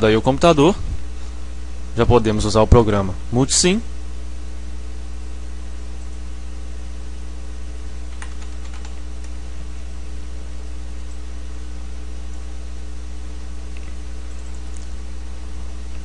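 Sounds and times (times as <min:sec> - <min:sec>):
low electrical hum: 0:00.0 - 0:16.0
keyboard keystrokes: 0:08.1 - 0:09.4, 0:13.7 - 0:14.9.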